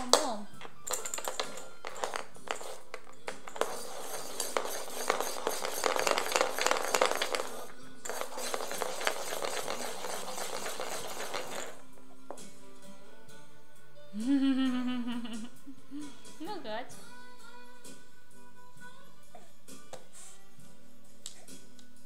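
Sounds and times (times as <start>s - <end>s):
plastic rattle toy clattering: 0.6s - 11.8s.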